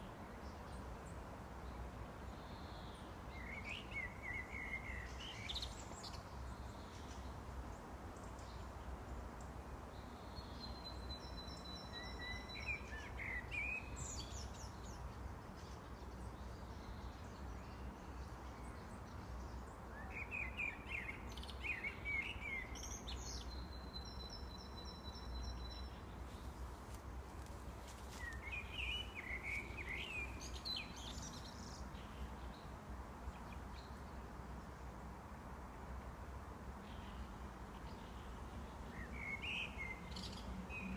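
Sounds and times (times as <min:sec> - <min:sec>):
blackbird singing: 0:10.3 - 0:14.8, 0:19.9 - 0:26.1, 0:28.1 - 0:32.6, 0:38.9 - 0:40.9.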